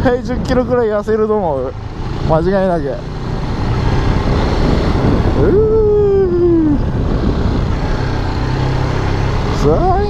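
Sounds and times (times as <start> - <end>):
motorcycle engine cruising: 0.0 - 10.0
wind rushing: 3.2 - 9.5.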